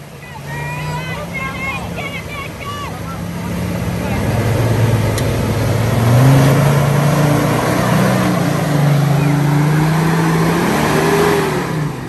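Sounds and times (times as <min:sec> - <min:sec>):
engine revving under load: 0:00.0 - 0:12.0
fast-flowing creek water: 0:00.0 - 0:12.0.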